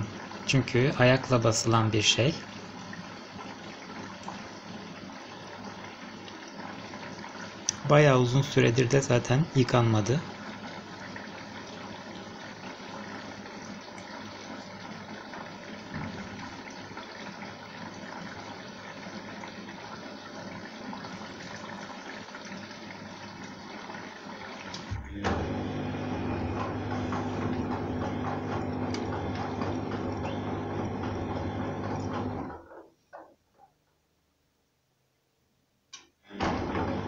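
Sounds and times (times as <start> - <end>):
water hissing into drum: 0.0 - 33.4
washing machine drum tumbling: 24.8 - 32.5, 36.4 - 37.0.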